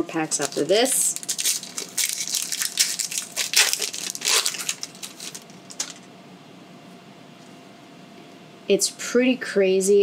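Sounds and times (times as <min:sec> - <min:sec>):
foil wrapper crinkling: 0:00.1 - 0:06.1.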